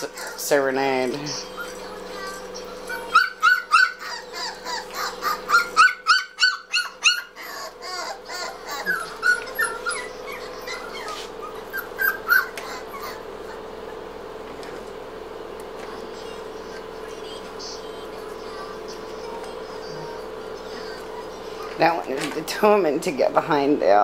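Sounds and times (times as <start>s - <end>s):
steady hum: 0.0s - 24.0s
dog yipping and whimpering: 1.4s - 14.0s.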